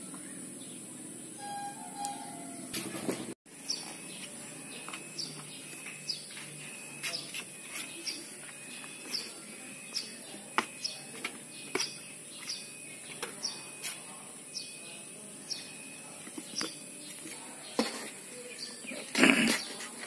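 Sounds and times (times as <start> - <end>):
short high chirps: 1.4 - 2.8.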